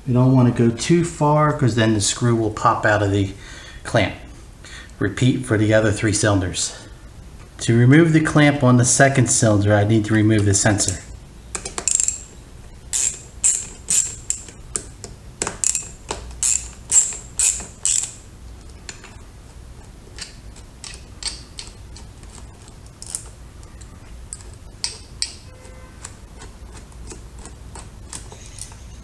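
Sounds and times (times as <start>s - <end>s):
ratcheting socket driver clicking: 15.4s - 18.2s.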